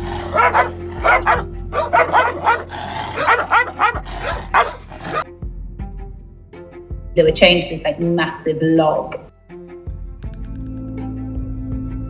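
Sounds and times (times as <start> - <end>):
dogs barking aggressively: 0.0 - 5.3.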